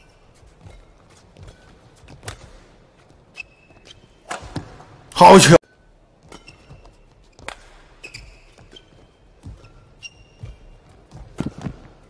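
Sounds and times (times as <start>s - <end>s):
court shoes squeaking: 0.0s - 12.0s
rackets hitting shuttlecock: 0.6s - 2.7s, 3.3s - 5.0s, 6.2s - 12.0s
dull footfalls on court: 6.6s - 12.0s.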